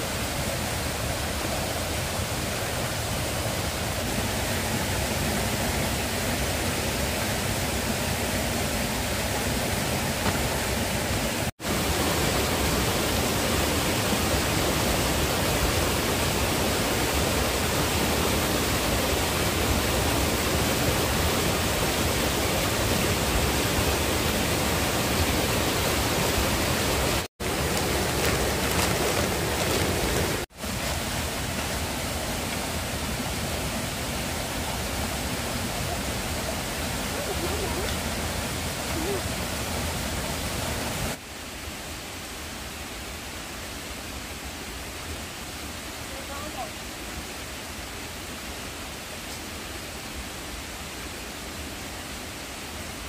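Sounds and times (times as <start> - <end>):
steady rushing noise: 0.0 - 33.8.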